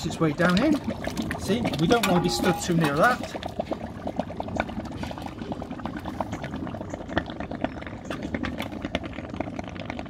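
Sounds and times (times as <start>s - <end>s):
lime mix bubbling and crackling: 0.0s - 10.0s.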